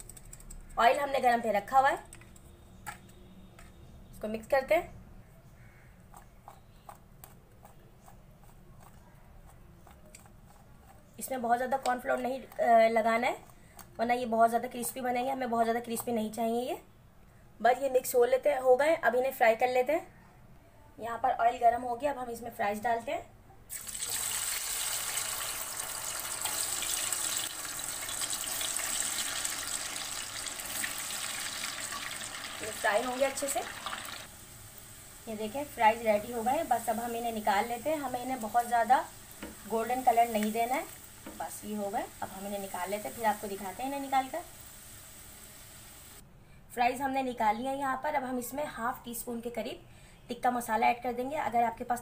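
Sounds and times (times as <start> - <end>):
fries sizzling in hot oil: 23.7 - 46.2
potato sticks tossed in a bowl: 24.6 - 34.2.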